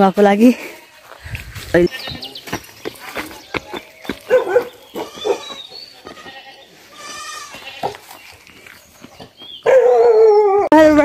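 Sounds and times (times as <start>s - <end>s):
faint footsteps on dirt: 0.0s - 9.9s
farm animal bleating: 0.6s - 2.5s, 4.9s - 8.2s.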